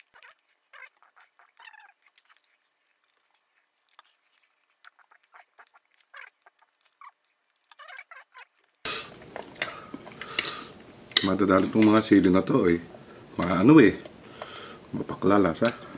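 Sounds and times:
person chewing wetly: 0.0s - 11.2s.

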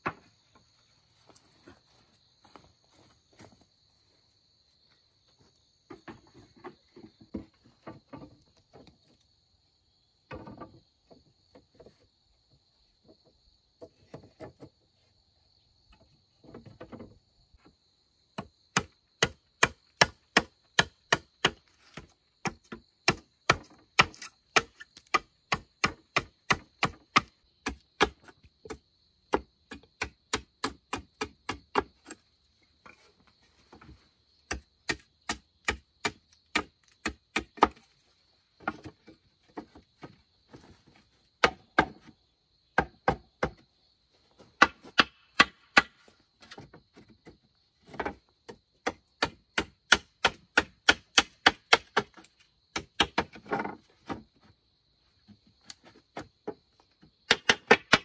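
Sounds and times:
tool knocking on bamboo: 41.4s - 42.1s.

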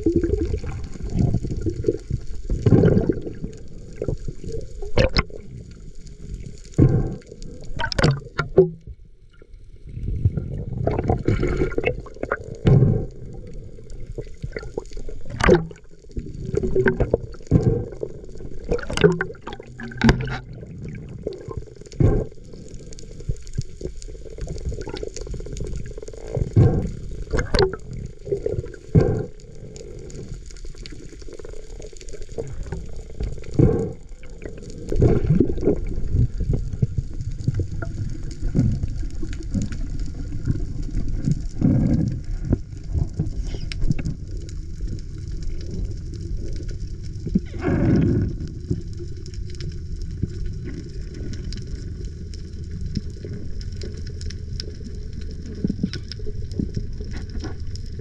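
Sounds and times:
muffled underwater water noise: 0.0s - 58.0s.

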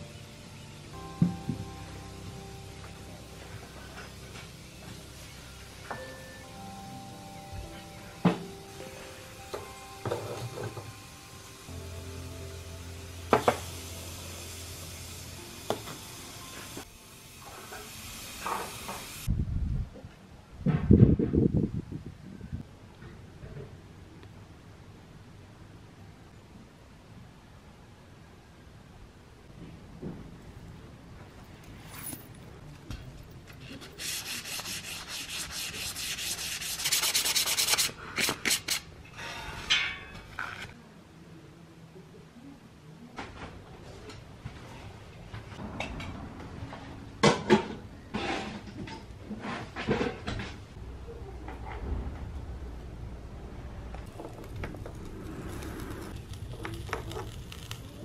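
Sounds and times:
steady hiss: 0.0s - 19.4s, 33.7s - 40.0s, 52.9s - 58.0s
abrasive rasping on steel: 39.0s - 40.6s.

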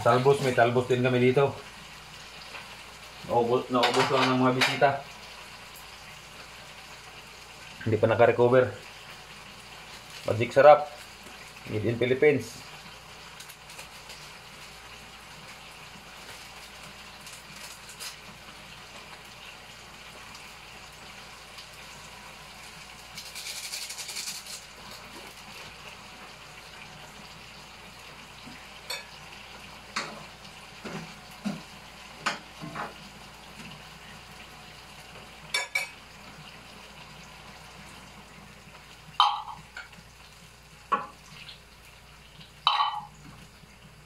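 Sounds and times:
vegetables sizzling in oil: 0.0s - 44.0s
kitchen utensils clinking: 3.8s - 4.8s, 35.5s - 36.0s, 39.2s - 39.9s, 42.7s - 43.2s.

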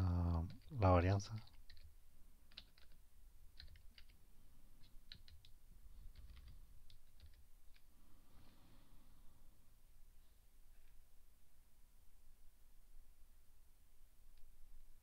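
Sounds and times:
faint keyboard typing: 0.0s - 8.6s.

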